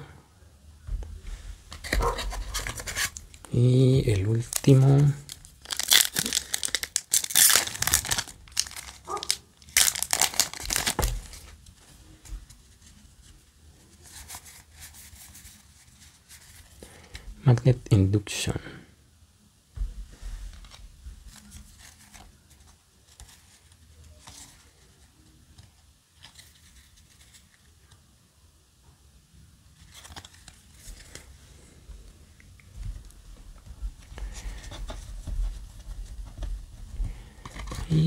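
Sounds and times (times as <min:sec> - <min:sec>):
cards sliding and rustling: 0:01.7 - 0:03.4, 0:29.8 - 0:31.4, 0:37.1 - 0:38.0.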